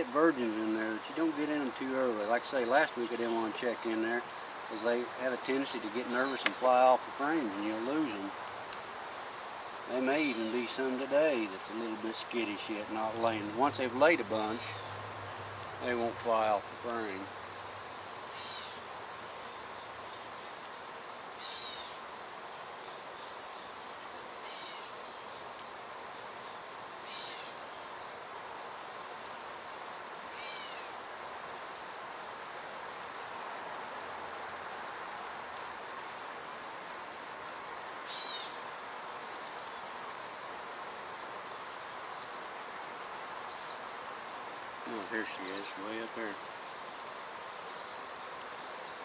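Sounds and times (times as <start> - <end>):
insects singing: 0.0 - 49.0.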